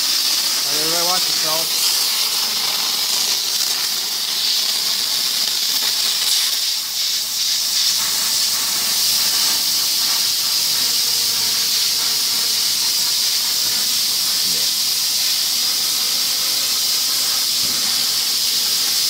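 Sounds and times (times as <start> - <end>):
plasma cutter hissing: 0.0 - 19.0.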